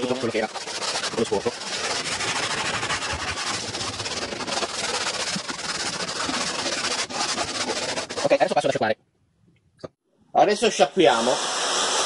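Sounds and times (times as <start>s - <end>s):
sponge scrubbing vinyl: 0.0s - 8.8s.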